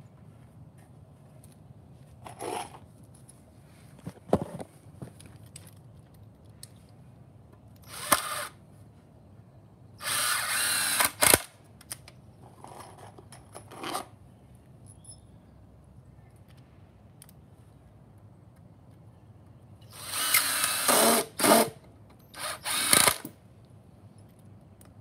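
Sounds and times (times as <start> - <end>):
cordless drill driving screws: 7.8 - 8.5, 10.0 - 11.5, 19.9 - 21.8, 22.4 - 23.3.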